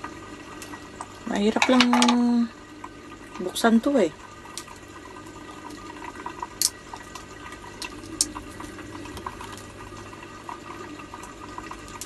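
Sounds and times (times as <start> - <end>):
aquarium filter water trickling: 0.0 - 12.0
crab shell cracking: 6.6 - 9.7.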